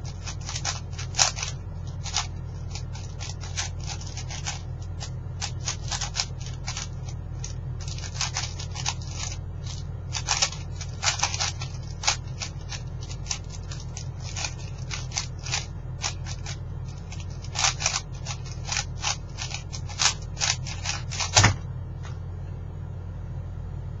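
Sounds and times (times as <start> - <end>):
speed cube clicking: 0.0 - 21.6
steady low hum: 0.0 - 24.0
cube thump and hands slapping pads: 21.2 - 21.6.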